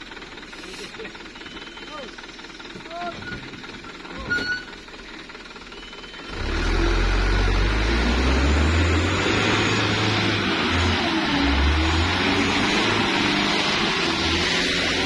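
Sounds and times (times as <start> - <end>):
diesel truck engine revving hard: 6.2 - 15.0.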